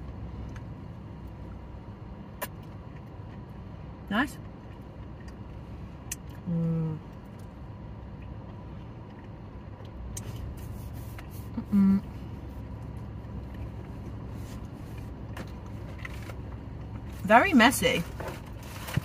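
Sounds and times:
low rumble inside car: 0.0s - 19.0s
woman humming with enjoyment: 6.5s - 7.0s, 11.6s - 12.2s.

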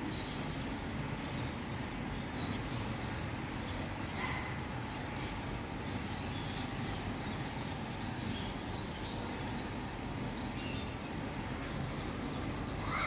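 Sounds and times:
outdoor background rumble: 0.0s - 13.0s
faint bird chirps: 2.2s - 13.0s.

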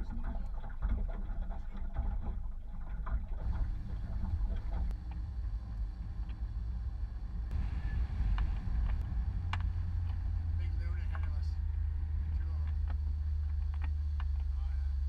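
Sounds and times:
wind buffeting microphone: 3.2s - 14.6s.

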